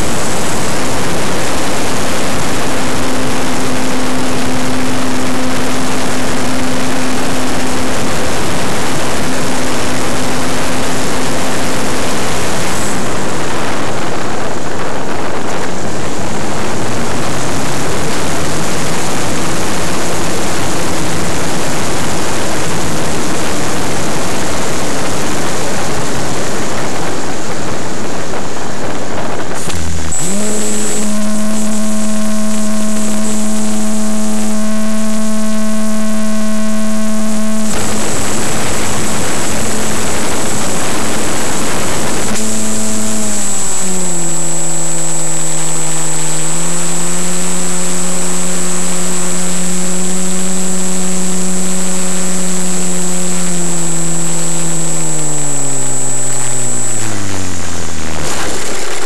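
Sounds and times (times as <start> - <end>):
wind rush: 0.0 - 30.2
model airplane motor and propeller: 0.0 - 59.0.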